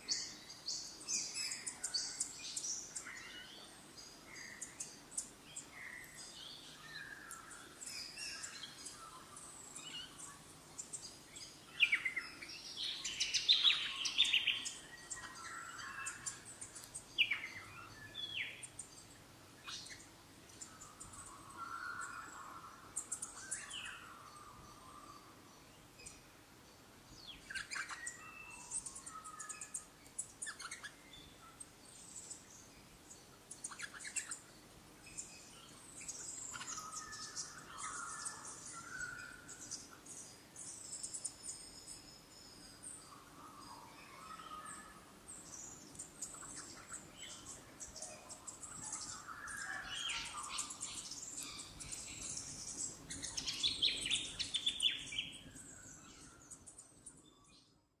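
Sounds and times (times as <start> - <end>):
birds whistling: 11.4 - 18.8, 36.0 - 39.9, 43.1 - 56.8.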